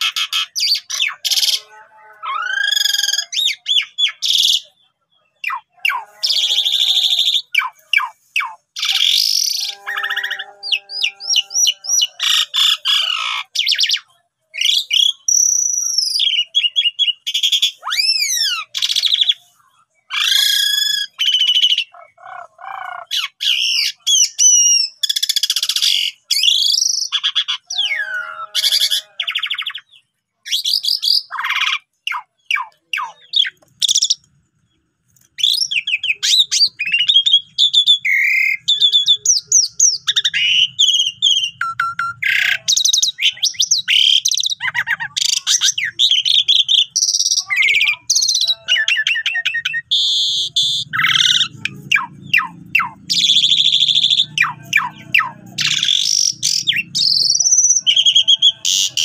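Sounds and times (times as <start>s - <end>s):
starling singing varied song: 0.0s - 4.7s, 5.3s - 19.4s, 35.4s - 59.0s.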